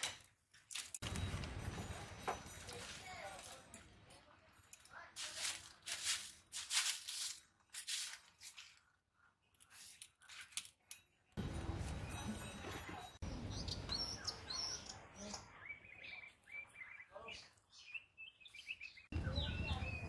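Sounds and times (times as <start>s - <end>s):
dry leaves and sticks crackling: 0.0s - 9.0s
birds chirping: 11.0s - 20.0s.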